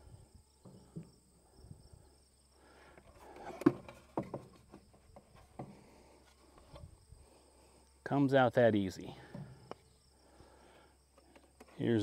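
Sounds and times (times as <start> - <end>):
insect chirring: 0.0 - 12.0.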